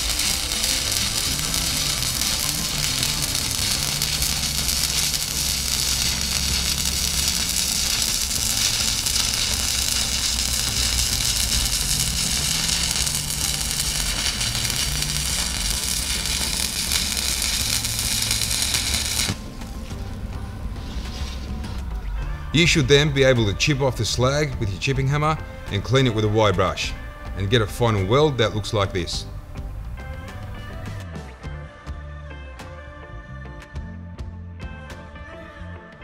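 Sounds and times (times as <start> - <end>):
welding arc crackling: 0.0 - 21.8
background music: 0.0 - 36.0.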